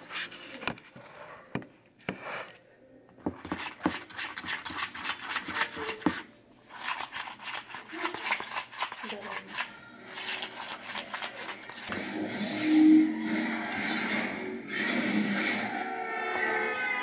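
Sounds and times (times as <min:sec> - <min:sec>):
spoon scraping a bowl: 0:03.3 - 0:15.8.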